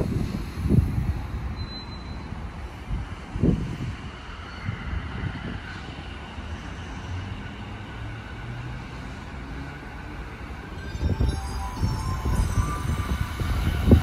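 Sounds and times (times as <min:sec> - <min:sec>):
electric train pulling away: 0:09.2 - 0:14.0.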